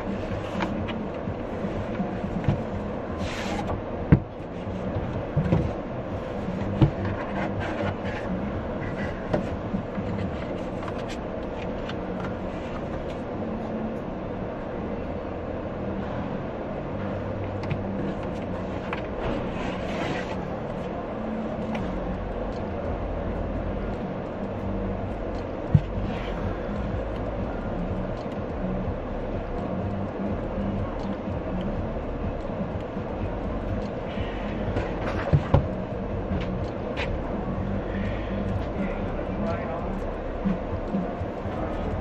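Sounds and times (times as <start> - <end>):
low droning hum: 0.0 - 42.0
steady rumbling background: 0.0 - 42.0
cardboard box sliding hiss: 3.2 - 3.7.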